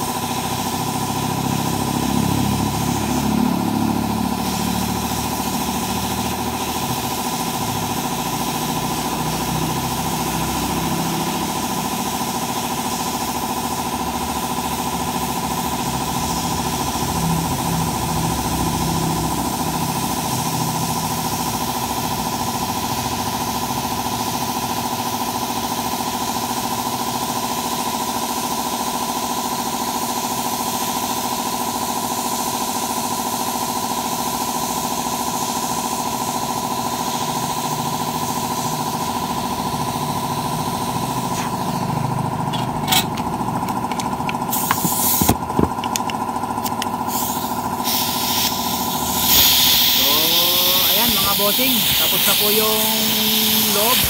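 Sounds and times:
electric motor humming and whining: 50.0s - 54.0s.

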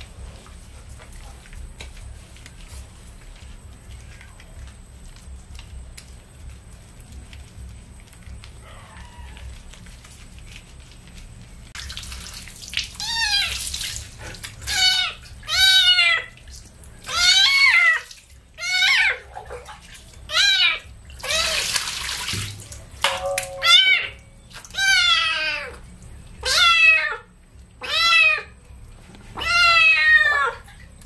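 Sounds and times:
water pouring and splashing: 11.6s - 26.4s
kitten meowing: 23.6s - 24.2s, 26.4s - 27.2s, 29.4s - 30.6s.

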